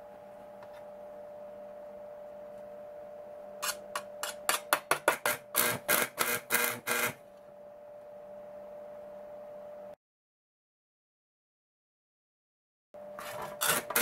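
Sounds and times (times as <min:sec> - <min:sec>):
arc welder sputtering: 0:03.6 - 0:07.2, 0:13.2 - 0:14.0.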